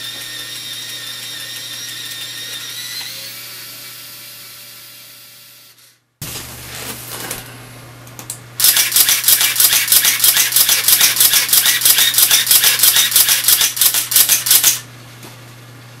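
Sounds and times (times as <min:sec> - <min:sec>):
camera mechanism clicking rapidly: 0:08.6 - 0:14.8.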